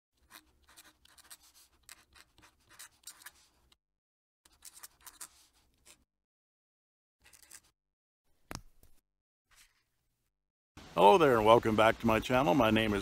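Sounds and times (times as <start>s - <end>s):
pen nib scratching on paper: 0.2s - 3.8s, 4.5s - 6.1s.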